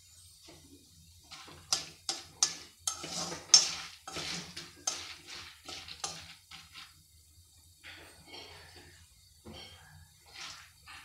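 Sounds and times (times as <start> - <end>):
spatula scraping kernels in pan: 0.4 - 7.1, 9.7 - 11.0.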